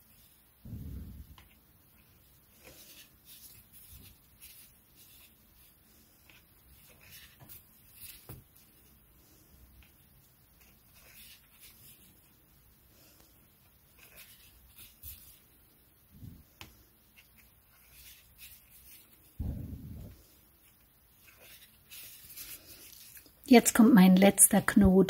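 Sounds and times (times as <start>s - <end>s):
cord rustling and ticking: 20.0s - 23.5s.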